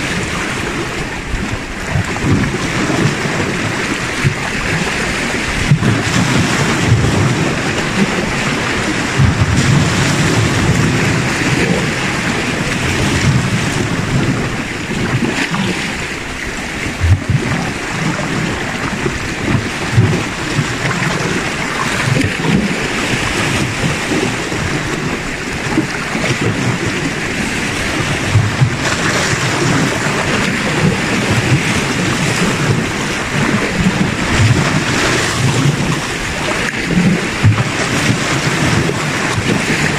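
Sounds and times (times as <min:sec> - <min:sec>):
sea waves splashing on rocks: 0:00.0 - 0:39.9
wind rumbling on microphone: 0:00.0 - 0:39.9.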